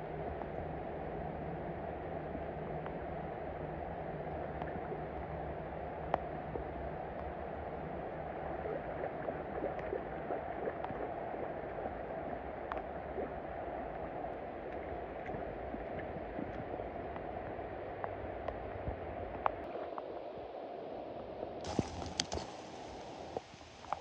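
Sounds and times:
faint ticks: 6.0 - 7.4, 12.7 - 13.3, 21.6 - 24.0
river current flowing: 21.6 - 24.0.

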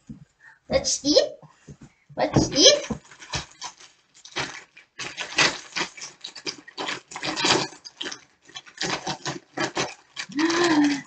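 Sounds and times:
food being handled: 1.6 - 11.0
crunching and chewing food: 2.8 - 11.0.

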